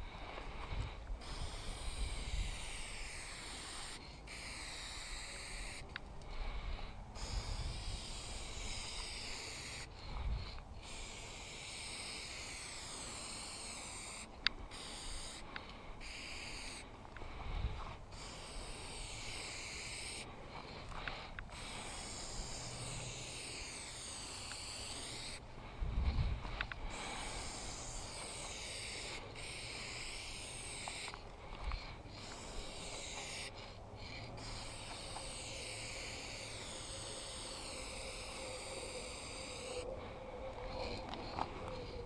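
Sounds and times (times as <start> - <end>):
spray paint can hissing: 1.2 - 5.8, 7.2 - 10.0, 10.8 - 16.8, 18.1 - 20.2, 21.1 - 25.4, 26.8 - 31.1, 31.8 - 33.6, 34.4 - 39.7.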